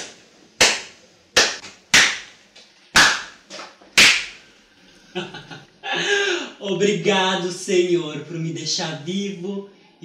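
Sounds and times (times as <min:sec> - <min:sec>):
slow hand claps: 0:00.0 - 0:02.4, 0:03.0 - 0:04.4.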